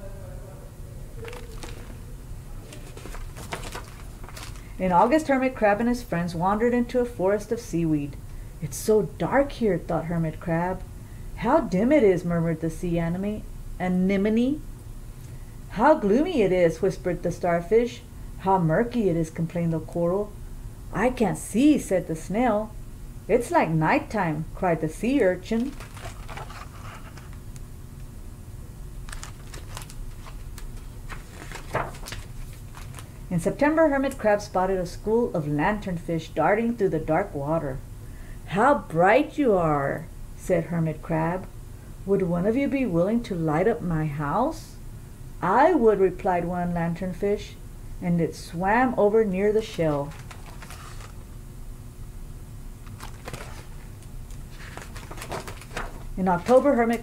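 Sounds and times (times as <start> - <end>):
steady low hum: 0.0 - 57.0
book page rustling: 1.2 - 2.0, 2.6 - 4.7, 25.6 - 27.4, 29.1 - 33.1, 50.0 - 51.2, 52.8 - 57.0.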